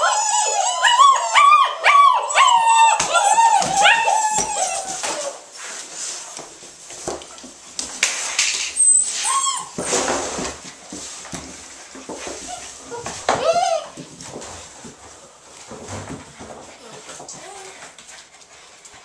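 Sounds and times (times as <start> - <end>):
puppy whining: 0.0 - 5.5, 8.6 - 10.1, 12.4 - 14.1, 16.8 - 18.0
puppies scuffling: 0.0 - 19.0.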